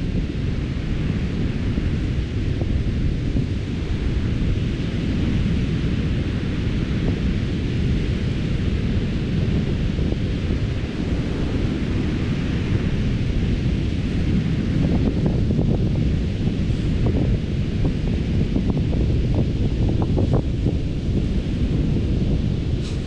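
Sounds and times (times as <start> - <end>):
wind buffeting microphone: 0.0 - 23.0.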